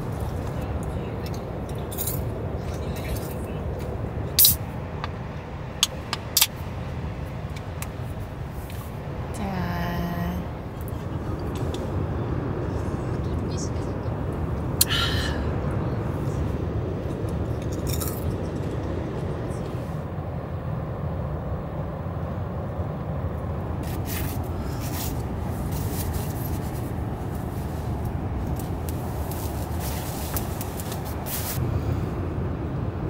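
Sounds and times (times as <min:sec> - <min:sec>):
low drone: 0:00.0 - 0:33.0.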